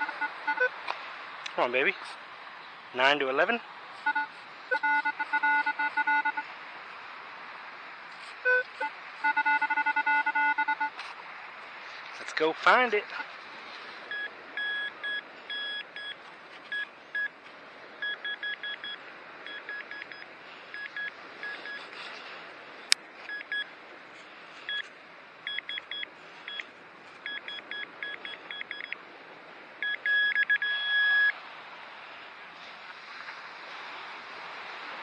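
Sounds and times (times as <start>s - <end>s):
metal detector beeping: 0.0s - 0.7s, 4.0s - 6.4s, 8.4s - 10.9s, 14.1s - 17.3s, 18.0s - 21.9s, 23.3s - 23.7s, 24.7s - 24.9s, 25.5s - 26.6s, 27.2s - 29.0s, 29.8s - 31.3s.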